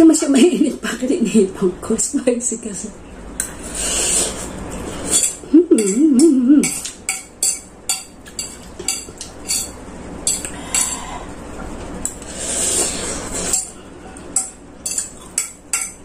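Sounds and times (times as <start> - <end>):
fork scraping on ceramic plate: 3.4 - 6.0, 9.4 - 11.3, 12.1 - 15.4.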